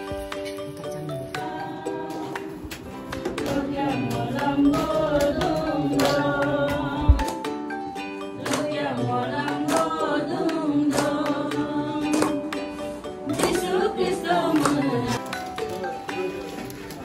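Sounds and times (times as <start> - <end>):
people clapping along: 0.2 - 17.0
group singing a hymn: 1.4 - 7.4, 8.3 - 15.2.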